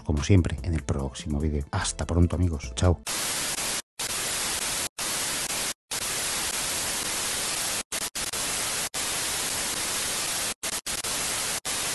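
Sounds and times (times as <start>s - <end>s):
television static hiss: 3.1s - 11.9s.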